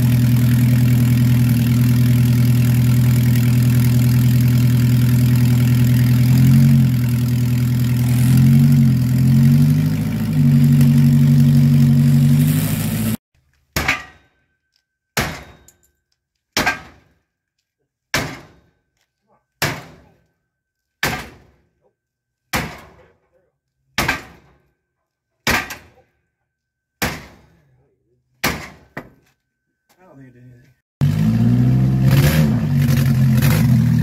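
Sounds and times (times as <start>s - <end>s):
engine running and revving: 0.0s - 13.2s, 31.0s - 34.0s.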